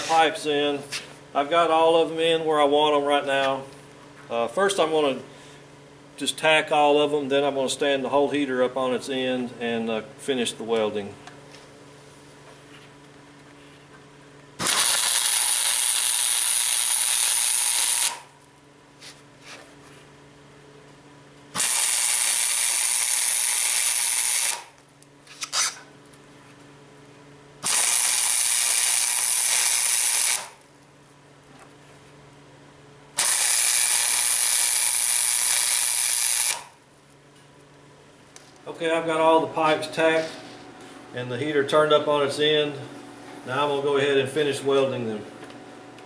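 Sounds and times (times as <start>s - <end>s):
steady low hum: 0.0s - 14.8s, 18.2s - 21.6s, 24.7s - 27.7s, 36.6s - 46.0s
arc welding crackling hiss: 14.6s - 18.3s, 21.6s - 24.8s, 27.6s - 30.6s, 33.2s - 36.7s.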